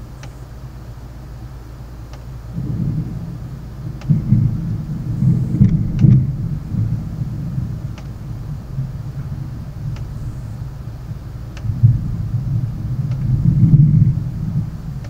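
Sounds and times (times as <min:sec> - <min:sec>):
faint clicks: 0:02.1 - 0:02.3, 0:09.9 - 0:10.2, 0:11.5 - 0:11.7, 0:13.0 - 0:13.3
rolling thunder: 0:02.5 - 0:15.0.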